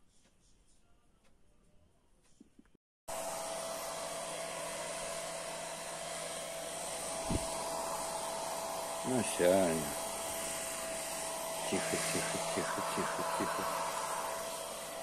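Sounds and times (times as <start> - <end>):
hair dryer whining: 3.1 - 15.0.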